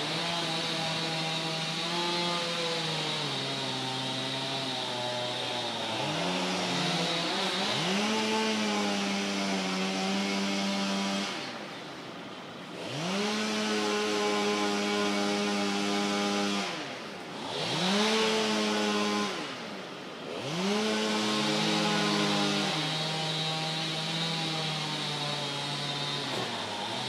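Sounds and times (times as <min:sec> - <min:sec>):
chainsaw cutting wood: 0:00.0 - 0:27.0.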